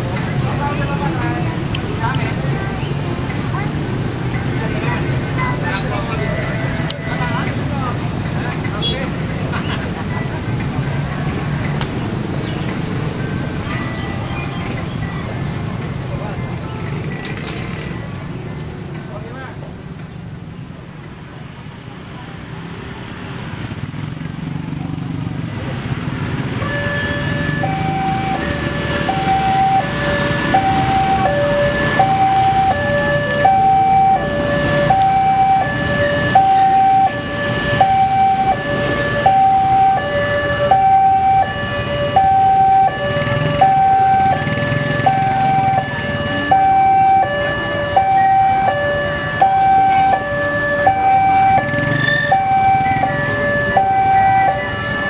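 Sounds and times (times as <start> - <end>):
motorbike traffic rumble: 0.0 - 55.0
level crossing two-tone alarm: 26.6 - 55.0.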